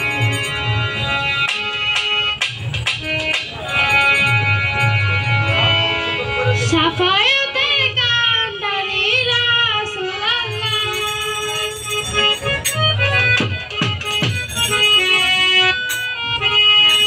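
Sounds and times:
held instrumental notes: 0.0s - 17.0s
woman singing devotional song: 6.6s - 11.4s.

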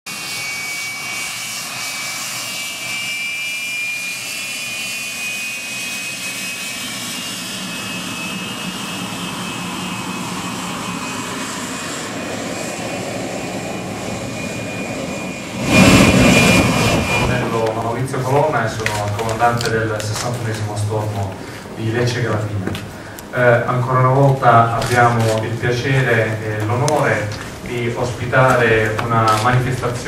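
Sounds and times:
jet engine whine: 0.1s - 30.0s
low rumble: 12.4s - 18.7s.

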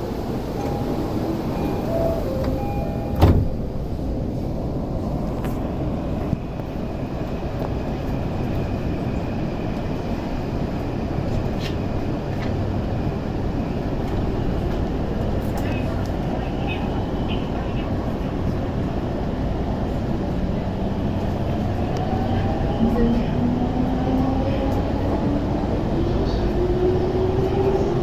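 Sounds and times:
train carriage hum and rumble: 0.0s - 28.0s
train doors shutting thud: 0.5s - 3.8s.

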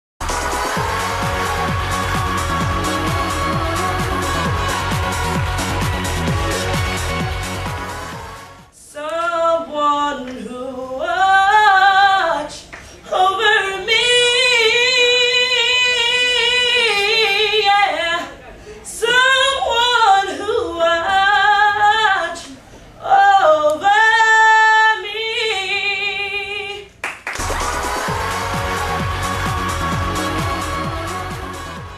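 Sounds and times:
woman singing unaccompanied: 8.8s - 26.9s.

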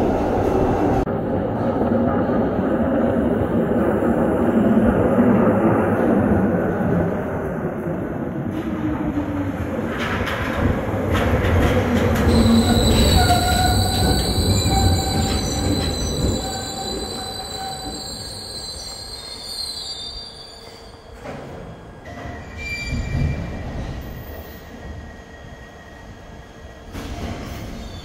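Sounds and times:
train wheels rumbling: 8.3s - 19.9s
train clunk stopping: 10.0s - 18.5s
high-pitched brake squealing: 12.3s - 21.0s.

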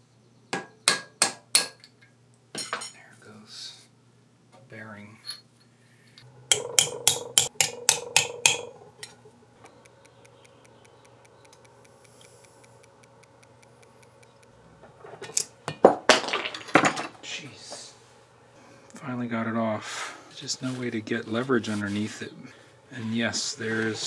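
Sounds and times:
metal-on-metal taps ringing: 6.5s - 8.7s.

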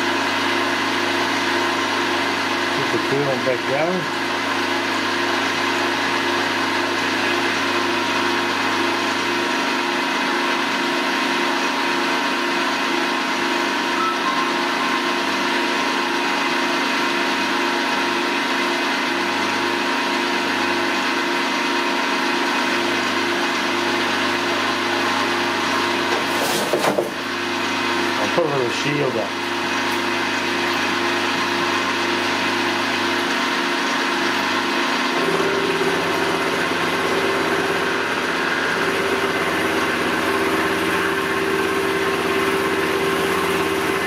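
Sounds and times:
milling machine motor hum: 0.0s - 44.0s
metal cutting noise: 11.8s - 44.0s.

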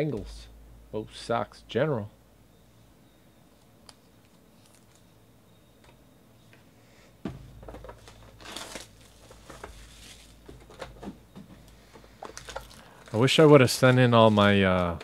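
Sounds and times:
sudden bump: 7.2s - 7.9s
plastic shrink wrap tearing: 8.0s - 10.4s.

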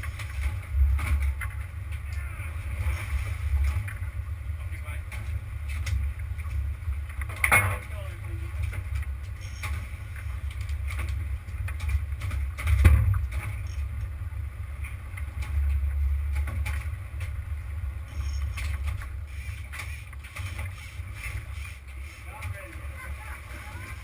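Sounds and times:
boat engine low rumble: 0.0s - 24.0s
knocks and clicks: 8.6s - 14.1s.

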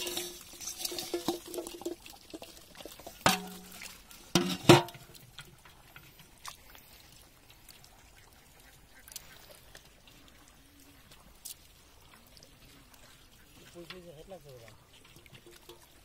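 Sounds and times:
metal bowl knocking on pot: 0.0s - 1.9s, 3.2s - 3.8s, 4.4s - 5.0s
water and fish splashing: 0.0s - 16.0s.

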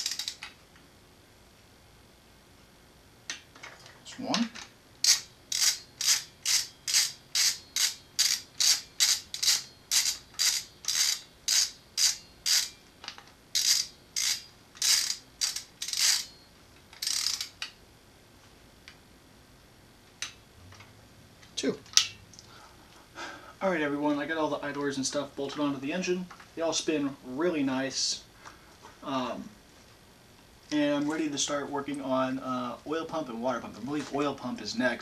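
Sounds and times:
ratchet wrench clicking: 0.0s - 0.5s, 4.6s - 16.3s, 16.9s - 17.8s.

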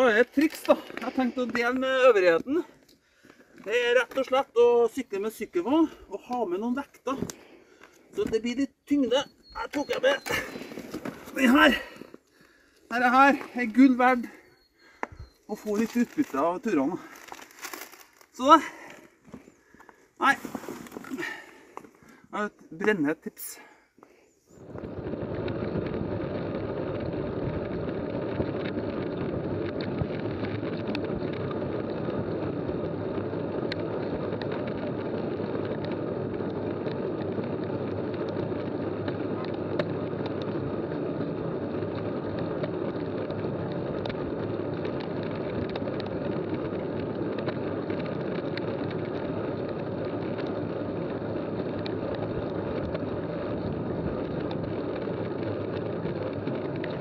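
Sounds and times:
bike tyres on asphalt: 0.0s - 57.0s
wind on microphone: 24.4s - 57.0s.

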